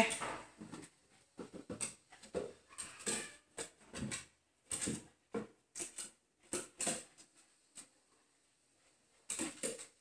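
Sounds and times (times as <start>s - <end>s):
dog paws on wooden stairs: 0.1s - 7.9s.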